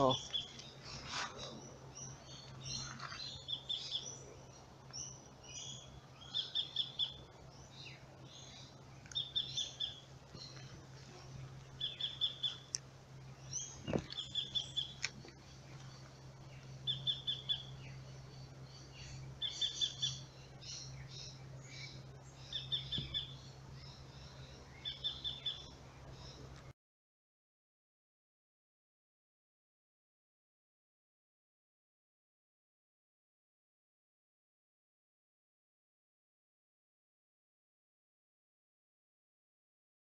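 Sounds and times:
bird chirps: 0.0s - 15.1s, 15.8s - 26.5s
steady low hum: 0.0s - 26.7s
bird trilled call: 19.4s - 20.2s.

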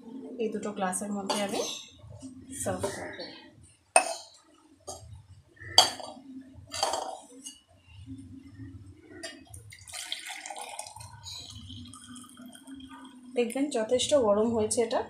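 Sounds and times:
hot drink pouring: 9.4s - 13.4s.

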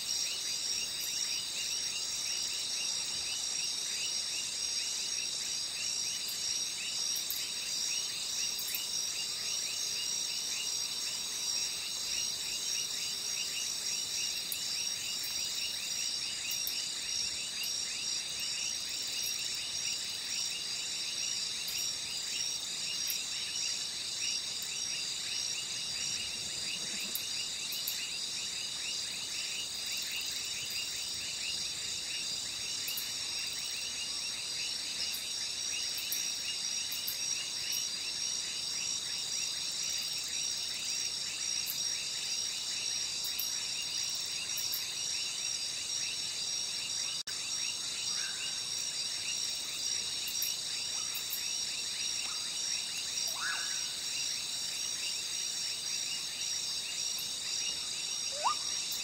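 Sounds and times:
crickets trilling: 0.0s - 59.0s
short falling insect chirps: 58.3s - 58.8s.

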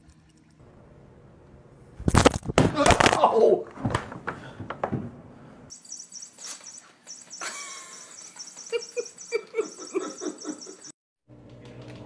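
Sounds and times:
person laughing: 7.4s - 10.9s.

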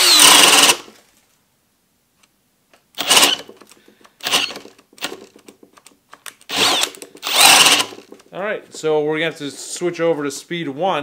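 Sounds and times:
drill motor bursts: 0.0s - 0.9s, 3.0s - 3.5s, 4.2s - 5.1s, 6.5s - 8.1s.

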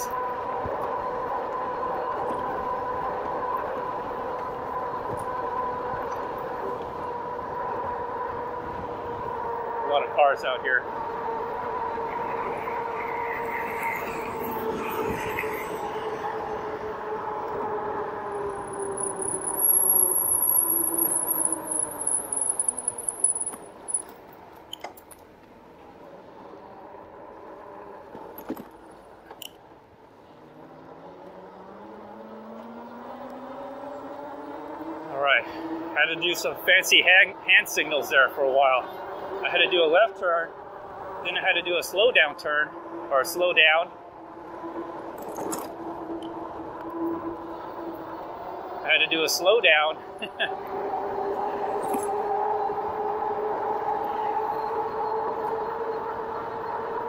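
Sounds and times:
vehicle engine: 0.0s - 24.8s, 30.1s - 57.0s
wind and road noise: 0.0s - 57.0s
electric bike motor hum: 15.8s - 23.5s.

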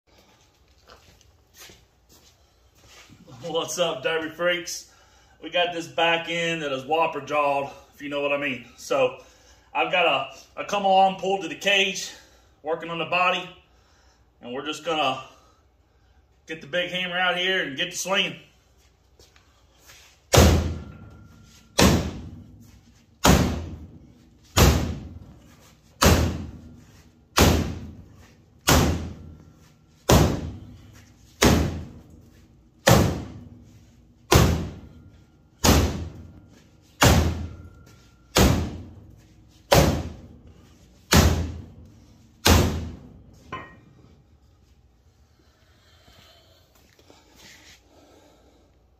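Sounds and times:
sledgehammer striking car metal: 20.3s - 22.6s, 23.2s - 25.3s, 26.0s - 29.4s, 30.0s - 32.1s, 32.8s - 33.6s, 34.2s - 40.3s, 41.0s - 41.8s, 42.4s - 43.8s.

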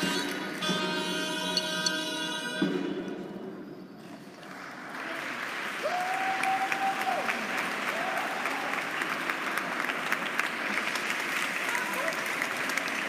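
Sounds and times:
held tone: 0.0s - 3.8s
audience applauding: 4.0s - 13.0s.

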